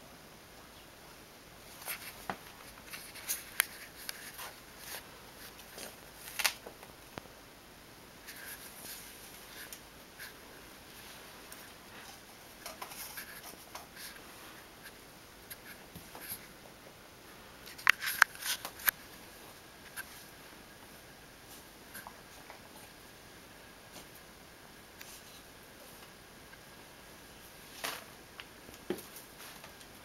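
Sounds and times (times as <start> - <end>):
soft rustling: 1.6 - 6.8.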